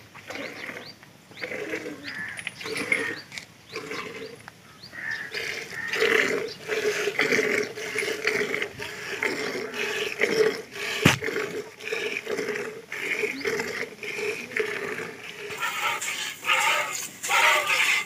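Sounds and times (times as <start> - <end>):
sharp knock: 11.0 - 11.2.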